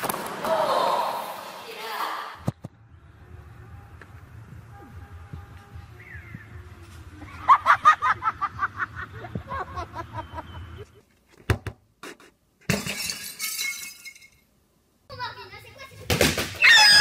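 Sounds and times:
glass shattering: 12.7s - 14.4s
high repeated cries: 16.6s - 17.0s.

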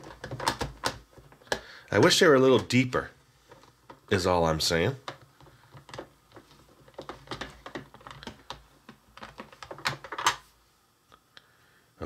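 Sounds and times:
clicks and taps on plastic: 0.0s - 1.8s, 5.0s - 10.4s.

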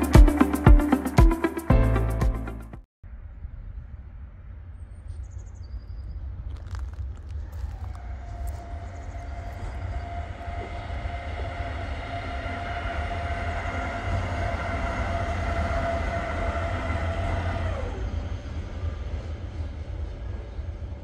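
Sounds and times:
electric locomotive whine: 7.2s - 21.0s.

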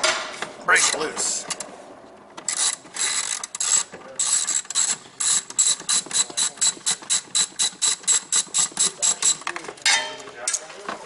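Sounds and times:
hand ratchet clicking: 2.4s - 9.5s.

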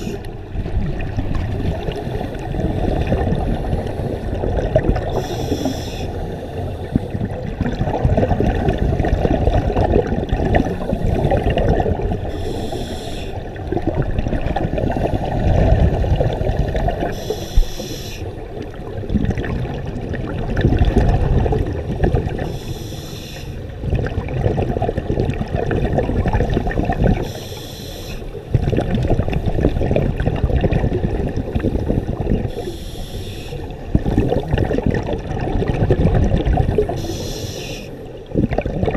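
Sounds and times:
gurgling exhaled bubbles: 0.0s - 27.4s, 28.3s - 38.9s
regulator inhalation hiss: 5.1s - 7.0s, 12.3s - 13.4s, 17.1s - 18.3s, 22.5s - 23.6s, 27.2s - 28.4s, 32.5s - 33.7s, 37.0s - 38.0s.

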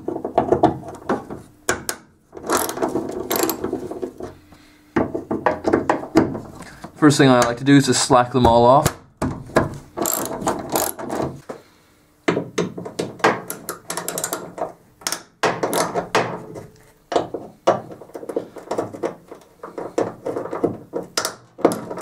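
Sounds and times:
socket ratchet clicking: 10.0s - 11.0s.

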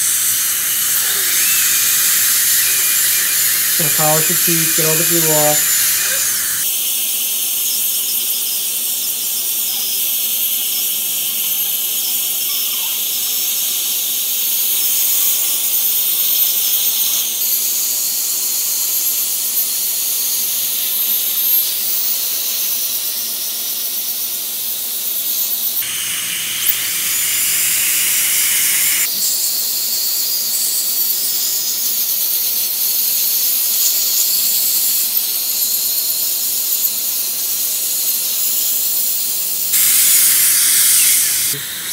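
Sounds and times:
dental suction hissing: 0.0s - 6.6s, 25.8s - 29.4s, 39.8s - 41.9s
dental drill whining: 0.0s - 6.7s, 25.8s - 29.4s, 39.7s - 41.9s.

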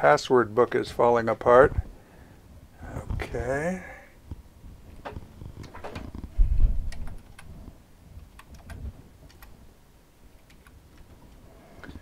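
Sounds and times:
computer keyboard key clicks: 6.9s - 7.5s, 8.3s - 9.6s, 10.4s - 11.1s.

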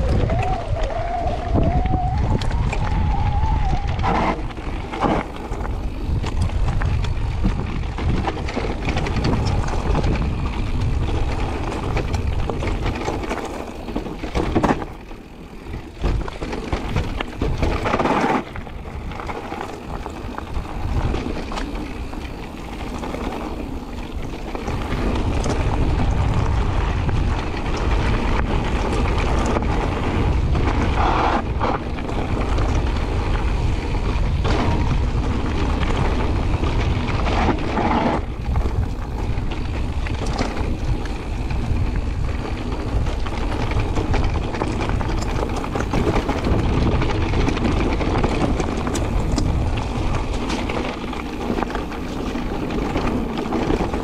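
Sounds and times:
bike tyres rolling on gravel: 0.0s - 54.0s
wind buffeting microphone: 0.0s - 54.0s
bike knocks and rattles: 1.6s - 54.0s.

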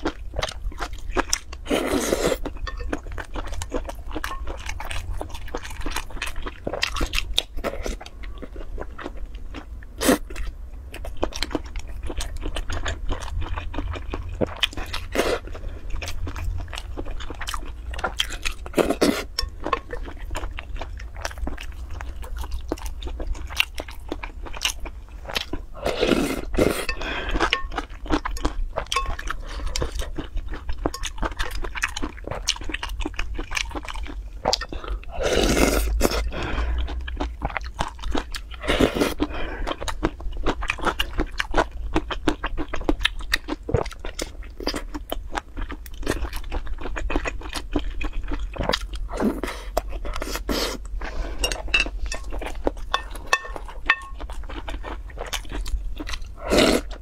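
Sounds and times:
wet chewing: 0.0s - 57.0s.

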